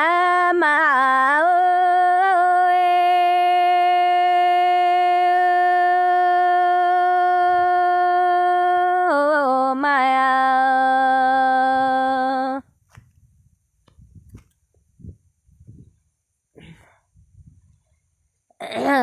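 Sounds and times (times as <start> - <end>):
person singing unaccompanied: 0.0 - 12.7.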